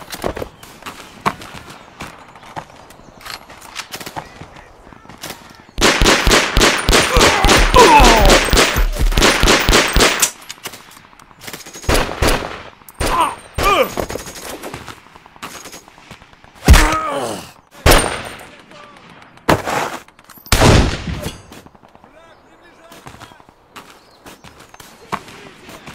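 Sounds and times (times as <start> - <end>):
submachine gun fire: 5.8 - 10.3.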